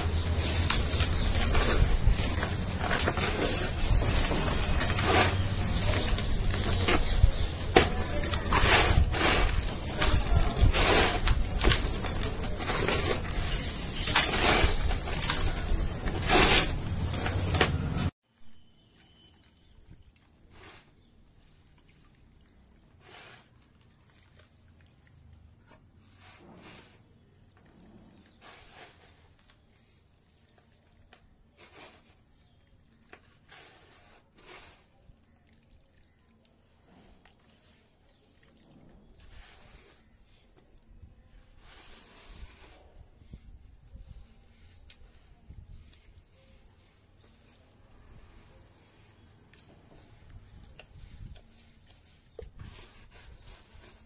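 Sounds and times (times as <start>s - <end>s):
sand grains pattering into dish: 0.0s - 17.6s
sand crumbled between fingers: 0.0s - 18.0s.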